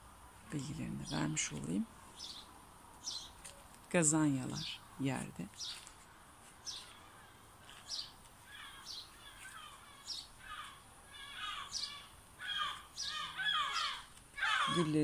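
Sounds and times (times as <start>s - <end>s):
gulls calling: 6.5s - 15.0s.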